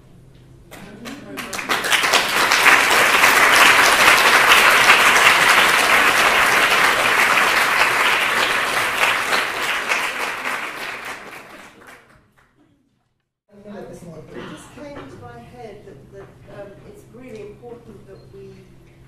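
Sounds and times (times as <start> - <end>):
large audience applauding: 0.7 - 12.6.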